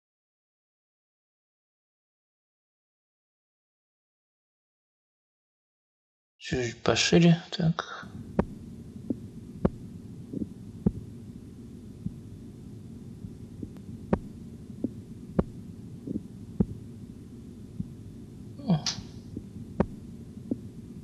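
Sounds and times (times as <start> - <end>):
steady low hum: 6.5 - 21.0
heartbeat knocks through stethoscope: 8.4 - 11.1, 13.6 - 16.8, 19.4 - 20.7.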